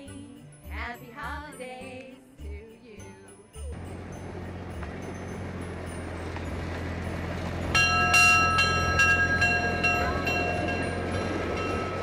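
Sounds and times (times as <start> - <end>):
train low running hum: 3.6 - 12.0
brass train bell ringing: 3.8 - 12.0.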